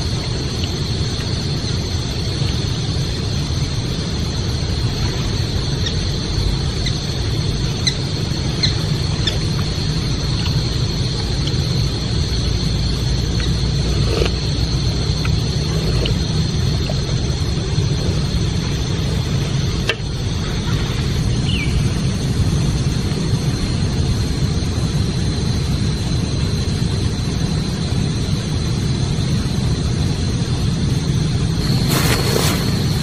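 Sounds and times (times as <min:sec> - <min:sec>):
high whine: 0:00.0 - 0:33.0
rustling: 0:31.6 - 0:33.0.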